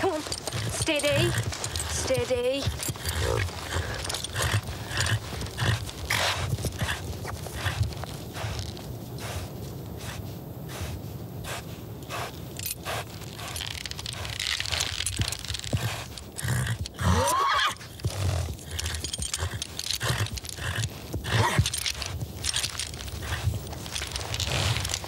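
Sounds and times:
horse hooves thudding and scuffing: 0.0s - 25.0s
horse neighing: 16.4s - 20.4s.

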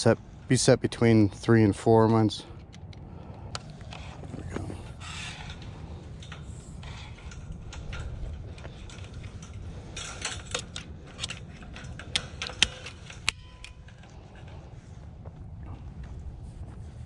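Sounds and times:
tensioning gun clicks: 2.1s - 4.6s, 5.5s - 14.6s.

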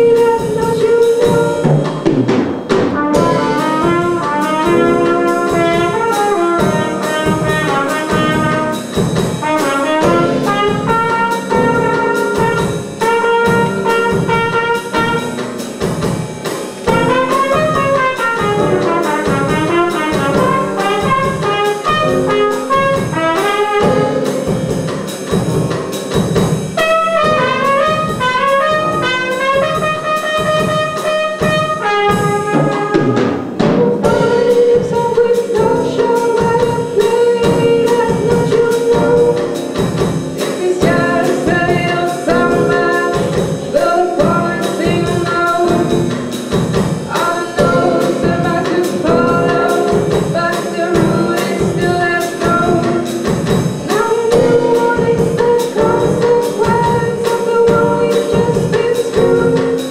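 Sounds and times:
drum kit beat: 0.0s - 59.9s
piano: 0.0s - 59.9s
trumpet jazz solo: 0.0s - 59.9s.

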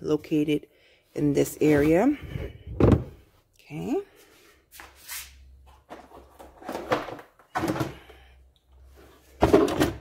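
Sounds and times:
items rustling and knocking in plastic: 5.6s - 8.2s, 8.8s - 10.0s.

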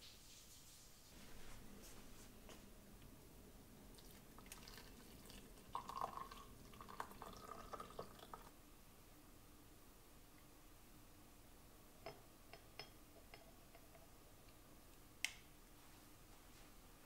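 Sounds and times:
water pouring into mug: 3.9s - 8.5s.

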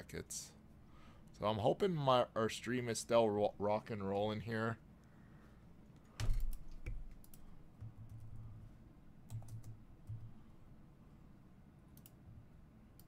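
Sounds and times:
computer keyboard typing: 6.2s - 8.4s, 9.2s - 10.3s.

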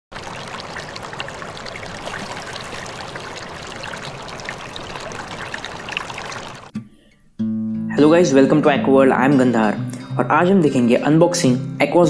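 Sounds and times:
stream rushing and splashing: 0.1s - 6.7s.

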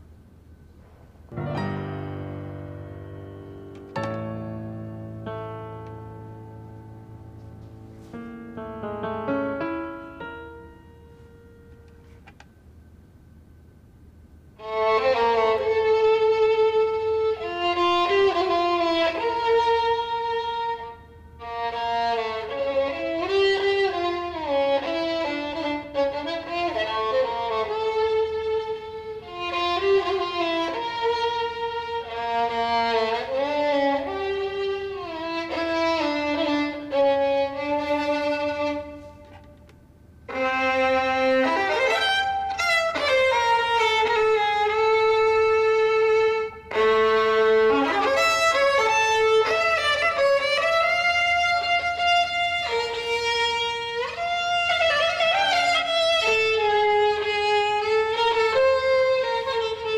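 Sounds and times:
two violins playing: 14.6s - 39.4s, 40.3s - 59.9s.

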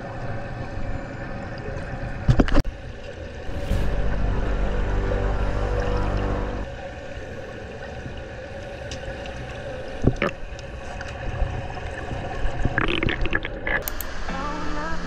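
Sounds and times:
muffled underwater hum: 3.5s - 6.9s.

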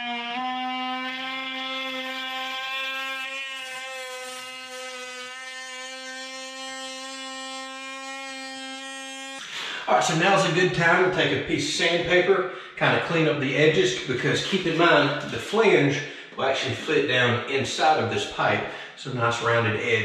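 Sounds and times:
oscillating multi-tool buzzing: 0.0s - 9.4s.

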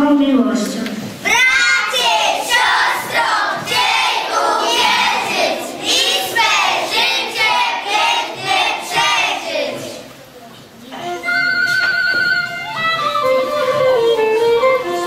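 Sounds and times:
children chanting in unison: 1.2s - 10.1s.

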